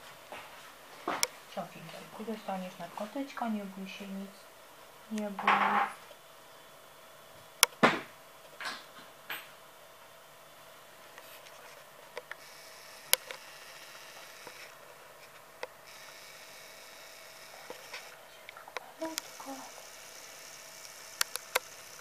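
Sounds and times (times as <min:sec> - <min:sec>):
faint steady hum: 0:00.0 - 0:22.0
sharp plastic clicks: 0:20.8 - 0:22.0.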